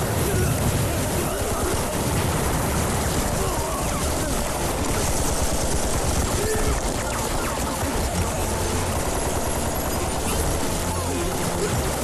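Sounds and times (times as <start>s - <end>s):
rifle and machine-gun fire: 0.0s - 12.0s.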